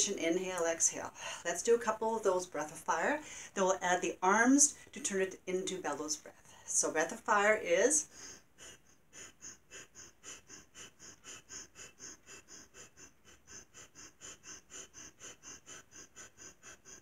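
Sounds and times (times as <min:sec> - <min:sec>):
rapid forceful nose breathing: 0:08.0 - 0:17.0.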